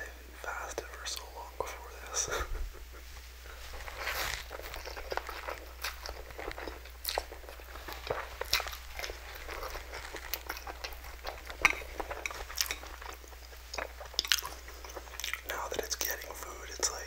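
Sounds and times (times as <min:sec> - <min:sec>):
biting and chewing: 0:03.6 - 0:16.4.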